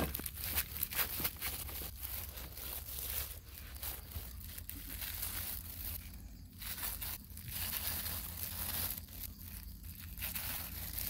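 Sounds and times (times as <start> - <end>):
plastic glove crinkling: 0.0 - 11.0.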